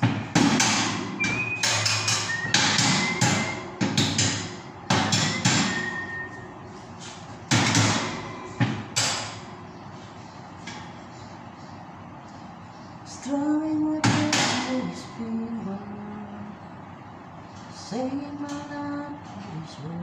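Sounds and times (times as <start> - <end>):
hammer striking metal grill: 0.0 - 6.3, 7.5 - 9.5, 14.0 - 15.1.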